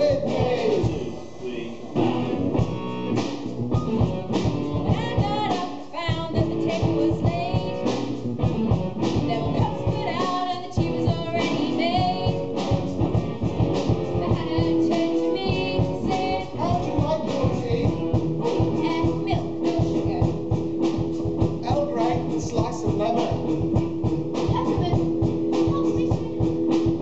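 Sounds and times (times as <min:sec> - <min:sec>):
person singing: 0:00.0 - 0:02.4, 0:09.2 - 0:12.5, 0:14.2 - 0:20.0
guitar: 0:00.0 - 0:27.0
song with steady beat: 0:00.0 - 0:27.0.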